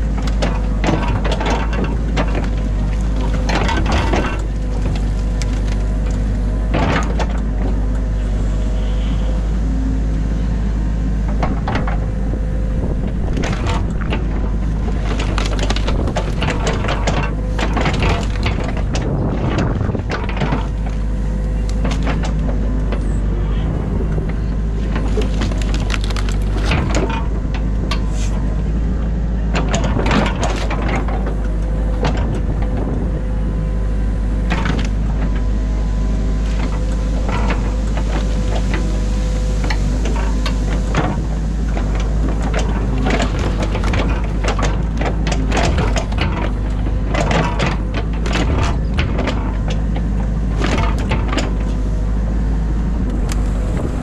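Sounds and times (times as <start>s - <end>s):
excavator diesel engine: 0.0s - 54.0s
branches cracking and snapping: 2.3s - 7.1s, 14.8s - 16.8s, 24.8s - 28.4s
mud being scraped: 28.0s - 28.4s.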